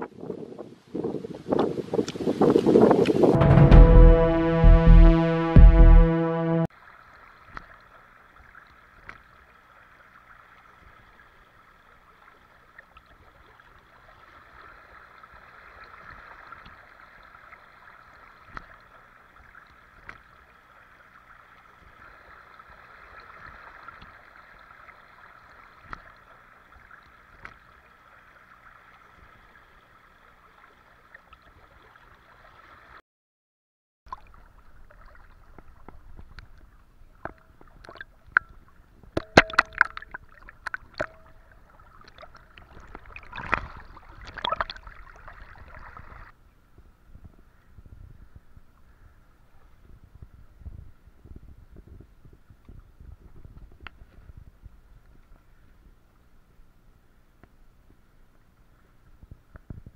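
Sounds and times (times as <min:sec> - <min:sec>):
person wading through water: 0:06.7 - 0:33.0, 0:34.1 - 0:46.3
small splashes and clicks: 0:07.0 - 0:33.0, 0:34.1 - 0:46.3.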